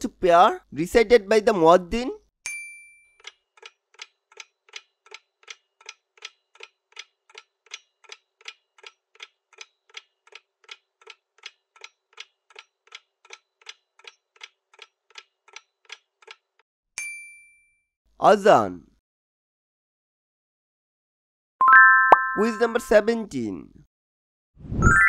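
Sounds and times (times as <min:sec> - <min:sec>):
clock ticking: 0:03.2 - 0:16.6.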